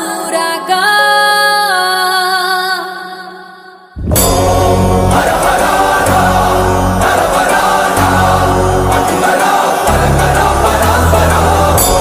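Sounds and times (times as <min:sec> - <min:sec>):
deep bass: 0:04.0 - 0:09.2, 0:09.9 - 0:12.0
choir chanting: 0:04.0 - 0:12.0
heavy drums: 0:04.0 - 0:12.0.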